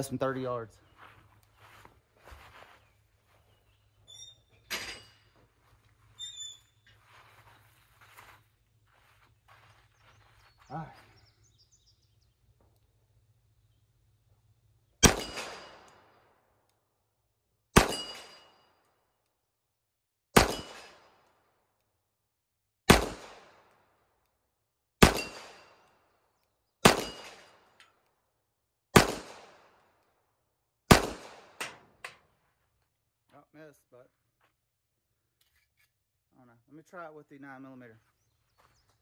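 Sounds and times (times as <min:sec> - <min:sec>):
pistol shots with echo: 0:15.0 - 0:16.2, 0:17.8 - 0:18.5, 0:20.4 - 0:21.2, 0:22.9 - 0:23.7, 0:25.0 - 0:25.9, 0:26.8 - 0:27.7, 0:28.9 - 0:29.8, 0:30.9 - 0:31.8.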